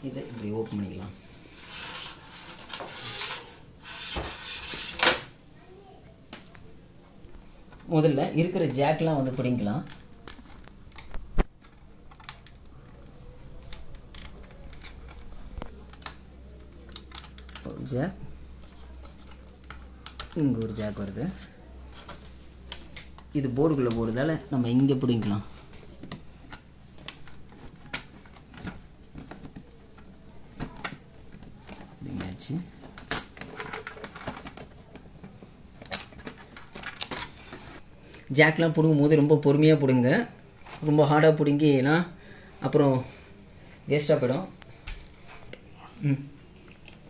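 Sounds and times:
plastic connectors clicking and rattling: 9.8s - 17.8s, 26.0s - 35.0s.

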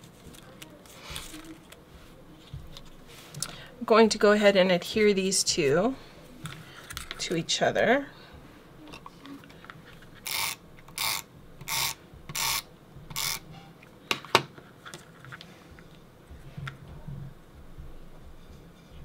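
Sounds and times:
tape runner rasping on paper: 10.2s - 13.5s.

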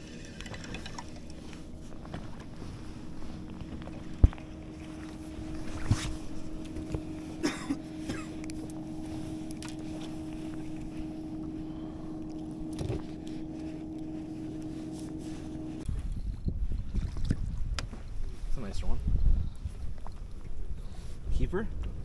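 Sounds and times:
electric motor humming: 0.0s - 15.8s.

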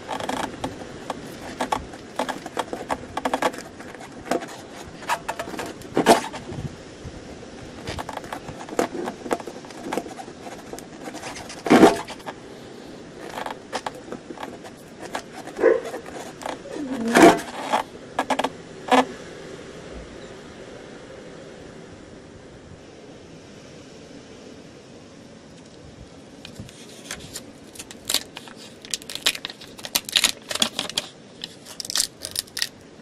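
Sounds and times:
handling noise scraping and rubbing: 0.0s - 19.2s, 26.4s - 32.8s.

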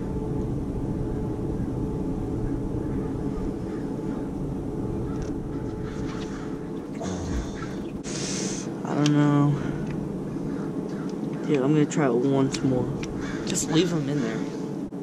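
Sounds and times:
low motor drone: 0.0s - 15.0s.

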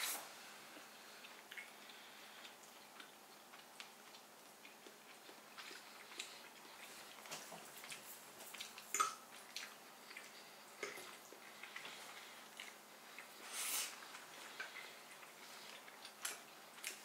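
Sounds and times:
quiet chewing: 0.0s - 17.0s.

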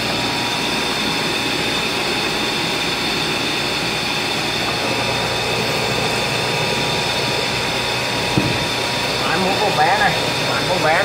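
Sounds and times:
air blower whirring: 0.0s - 11.0s.

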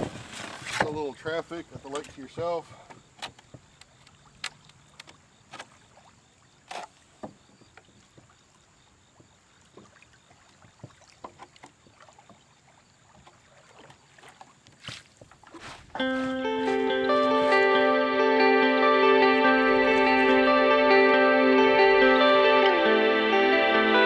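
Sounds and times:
paddle water splashes and drips: 0.0s - 16.3s.

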